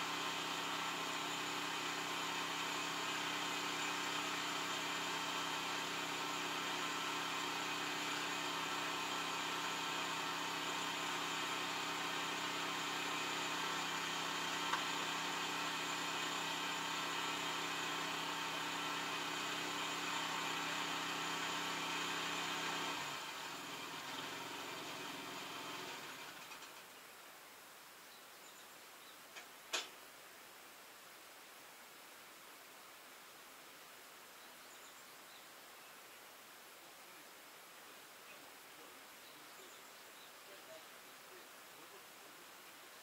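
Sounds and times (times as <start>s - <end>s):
tractor diesel engine idling: 0.0s - 26.5s
steady hiss: 0.0s - 43.0s.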